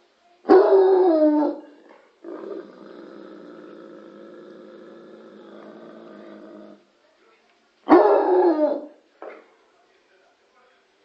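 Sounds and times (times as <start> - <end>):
dog barking: 7.9 - 8.5.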